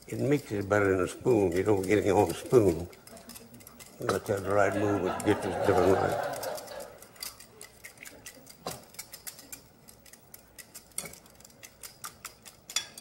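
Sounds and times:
whisk clicking against glass bowl: 0:00.0 - 0:13.0.

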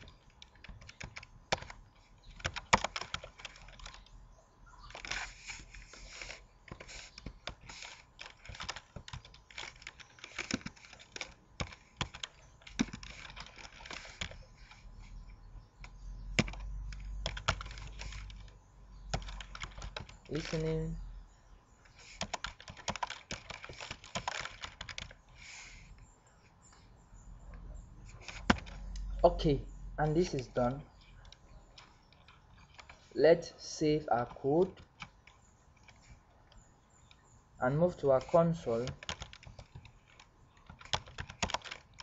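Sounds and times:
typing on computer keyboard: 0:00.0 - 0:04.1, 0:06.7 - 0:14.8, 0:16.4 - 0:20.7, 0:22.1 - 0:25.2, 0:28.1 - 0:29.1, 0:31.0 - 0:33.0, 0:38.8 - 0:42.0.

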